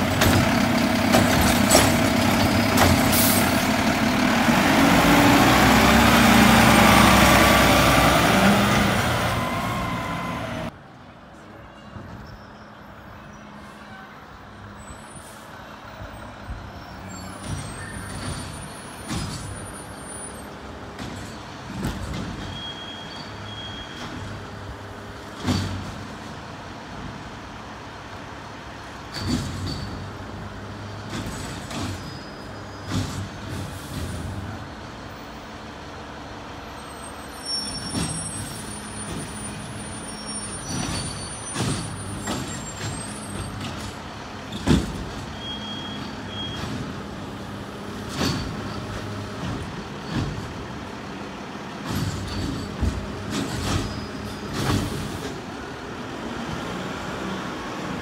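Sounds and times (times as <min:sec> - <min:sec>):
diesel engine running: 0:00.0 - 0:10.7.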